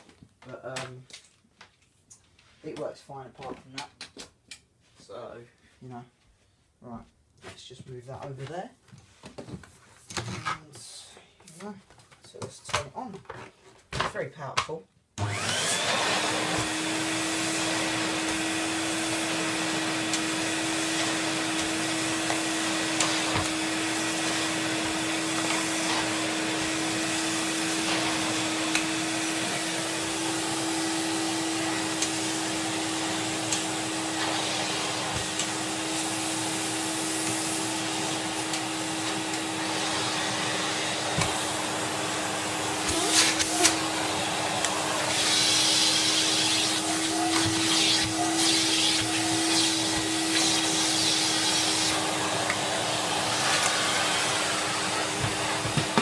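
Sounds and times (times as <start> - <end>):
vacuum cleaner running: 15.2 - 56.0.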